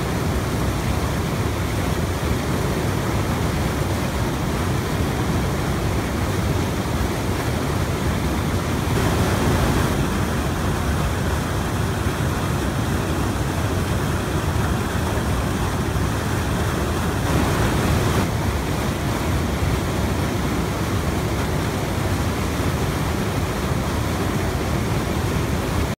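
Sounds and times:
water cascading over rocks: 0:00.0 - 0:26.0.

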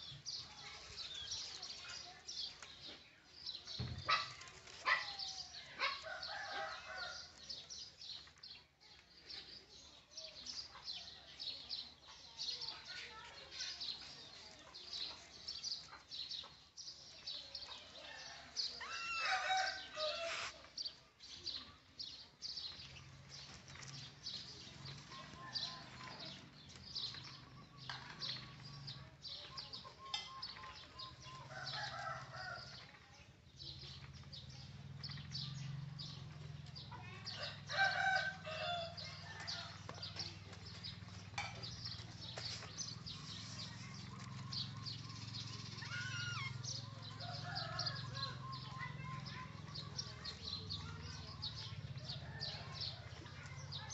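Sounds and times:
bamboo basket rattling on concrete: 0:03.6 - 0:06.1, 0:39.1 - 0:53.9
rooster crowing: 0:18.8 - 0:20.5, 0:37.5 - 0:39.1.

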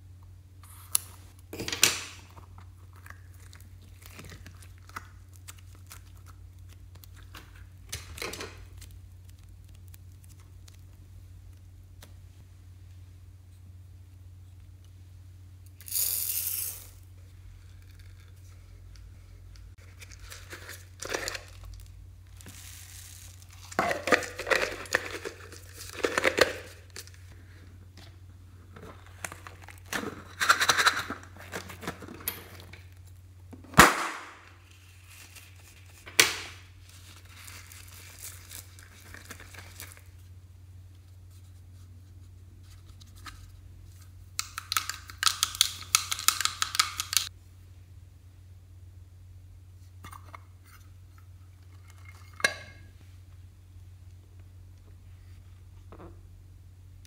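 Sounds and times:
steady low hum: 0:00.0 - 0:45.2, 0:47.3 - 0:57.0
plastic rustling and crinkling: 0:02.2 - 0:11.6, 0:19.8 - 0:33.1, 0:34.6 - 0:40.3.

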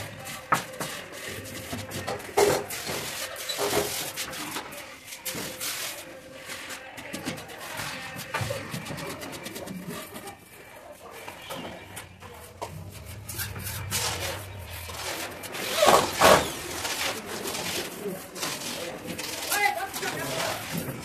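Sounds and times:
faint low hum: 0:11.7 - 0:17.6.

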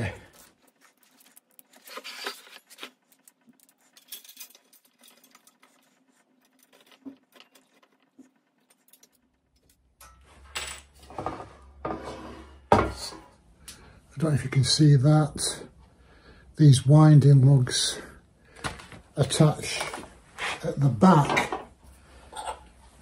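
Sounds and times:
metal bolts and washers clinking: 0:03.2 - 0:05.7.

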